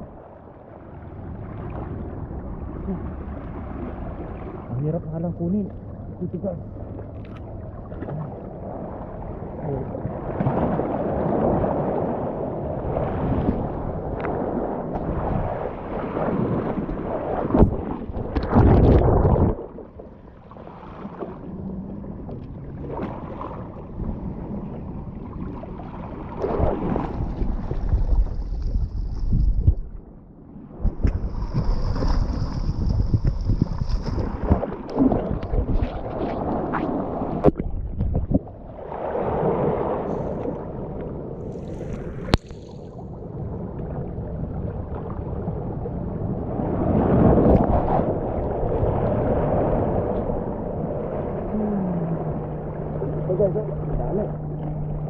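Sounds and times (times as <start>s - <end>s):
wind buffeting microphone: 8.1s - 20.3s, 21.3s - 55.0s
seawater washing over rocks: 14.2s - 21.6s, 30.8s - 40.4s.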